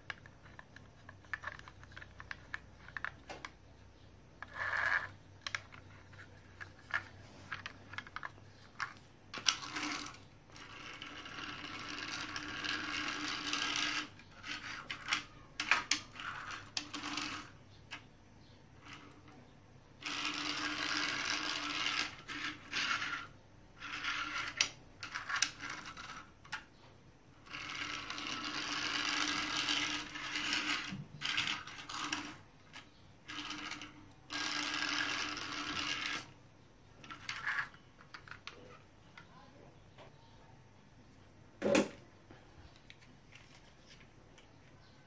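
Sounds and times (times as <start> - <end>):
toy cars rolling on tiles: 0.0 - 3.5, 4.4 - 18.1, 18.8 - 19.4, 20.0 - 26.7, 27.3 - 39.5.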